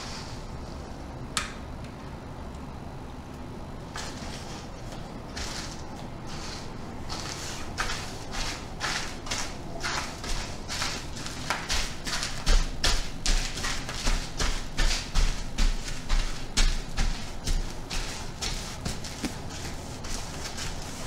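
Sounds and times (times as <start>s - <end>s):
footstep thuds: 7.1s - 21.0s.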